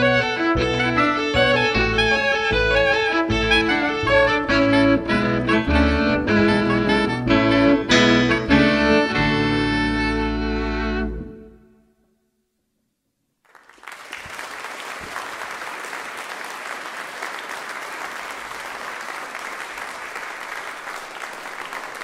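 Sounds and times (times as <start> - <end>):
audience applause: 13.5 - 22.0.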